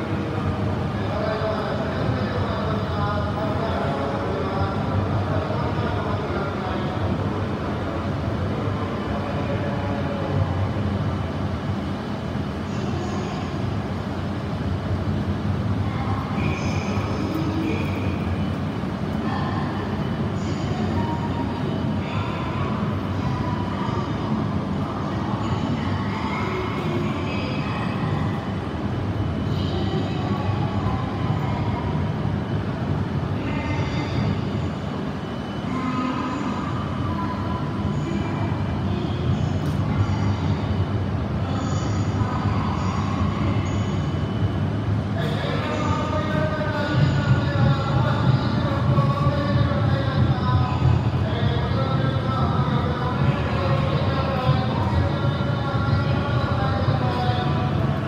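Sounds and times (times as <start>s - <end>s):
train low hum and whir: 0.0s - 58.0s
faint high whining tones: 15.9s - 58.0s.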